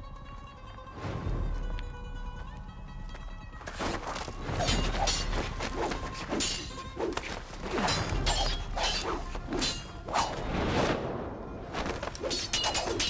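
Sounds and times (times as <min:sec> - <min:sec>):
sword swishes: 0:03.7 - 0:11.0, 0:11.7 - 0:13.0
sword blades clashing: 0:04.5 - 0:10.4, 0:11.9 - 0:13.0.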